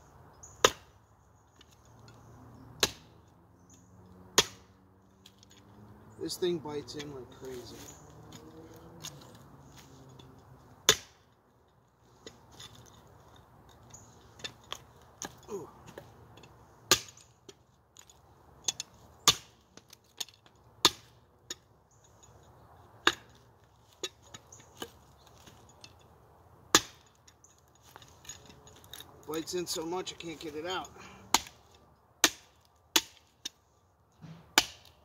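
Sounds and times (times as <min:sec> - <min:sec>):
knife chopping wood: 0:00.6 - 0:00.9, 0:02.8 - 0:03.1, 0:04.3 - 0:04.7, 0:10.8 - 0:11.3, 0:16.9 - 0:17.6, 0:18.7 - 0:21.6, 0:23.0 - 0:23.4, 0:26.7 - 0:27.1, 0:31.3 - 0:33.6, 0:34.2 - 0:35.0.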